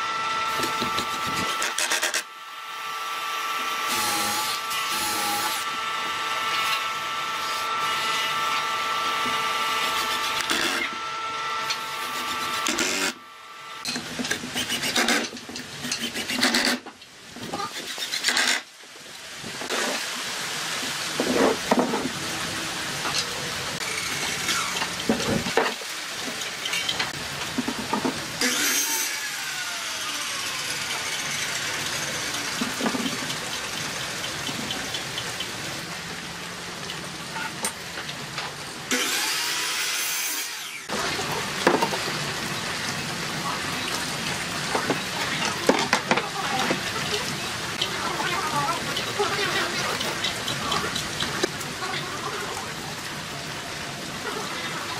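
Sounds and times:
cordless drill running: 0.0s - 13.8s, 28.4s - 32.6s.

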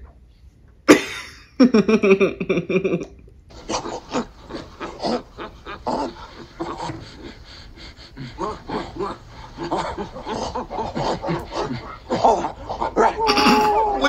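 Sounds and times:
ape crying: 3.5s - 14.0s
ape grunts: 3.5s - 14.0s
ape hooting call: 3.5s - 14.0s.

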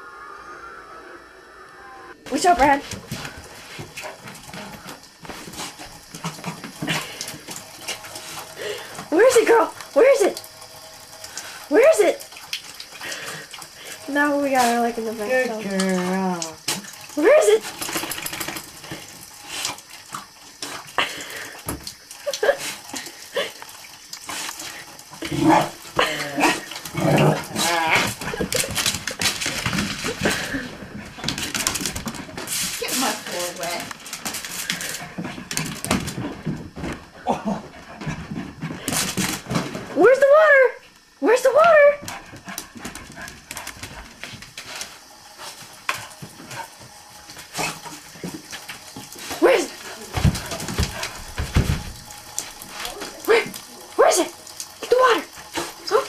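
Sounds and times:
dog claws clicking on bathtub: 17.6s - 19.0s, 28.0s - 37.0s, 50.1s - 53.7s.

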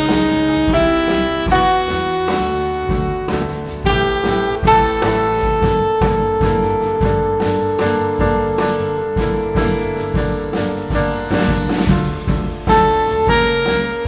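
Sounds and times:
bass: 0.0s - 14.0s
drums with cymbal strokes: 0.0s - 14.0s
piano: 0.0s - 14.0s
saxophone: 0.0s - 14.0s.

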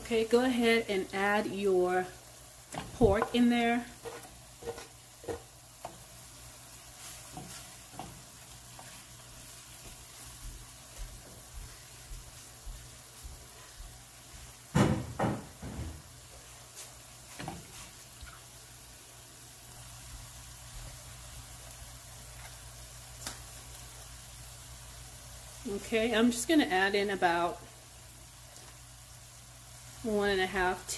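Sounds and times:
meat sizzling in a skillet: 0.0s - 30.9s
wooden spoon scraping and knocking pan: 2.7s - 6.1s, 6.9s - 11.7s.

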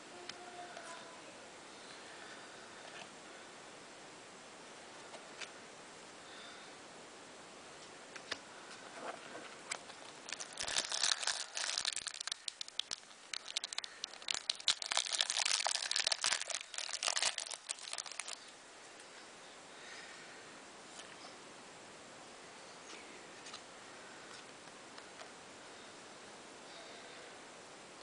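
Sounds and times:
foil wrapper crinkling: 9.7s - 18.5s
card pack tearing open: 10.0s - 18.4s.

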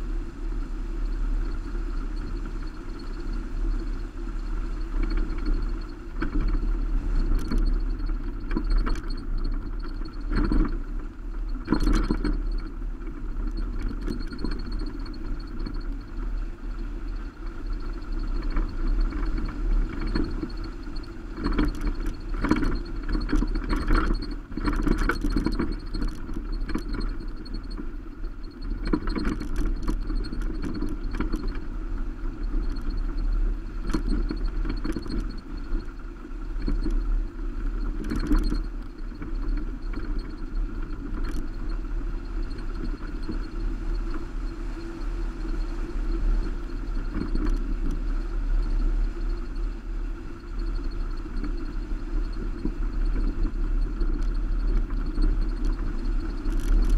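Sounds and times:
road and wind rumble: 0.0s - 56.9s
gravel knocks and rattles: 4.5s - 44.4s, 52.2s - 56.9s.

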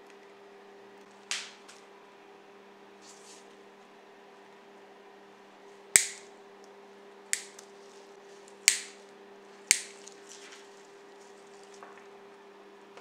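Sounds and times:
sharp metallic snaps: 6.0s - 6.3s, 7.3s - 7.7s, 8.6s - 9.0s, 9.7s - 10.0s.

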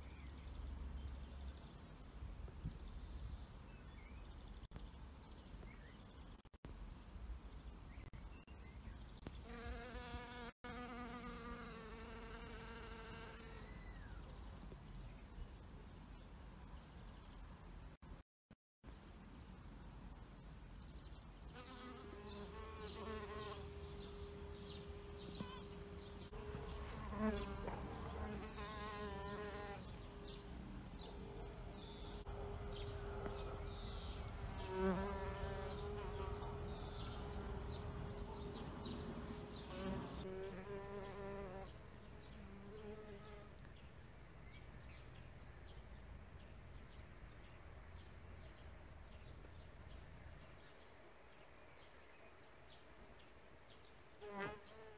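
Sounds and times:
bee buzzing in flight: 9.5s - 13.7s, 26.0s - 30.4s, 32.2s - 38.4s.

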